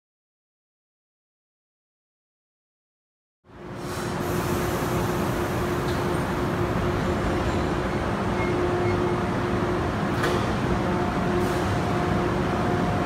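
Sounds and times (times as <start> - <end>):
electric train running with low hum: 3.5 - 13.0.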